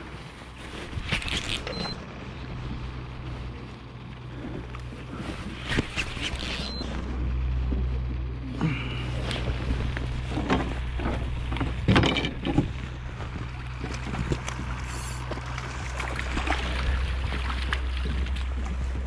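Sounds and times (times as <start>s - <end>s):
low motor hum: 0.0s - 19.0s
short knocks and clatters: 10.3s - 12.8s.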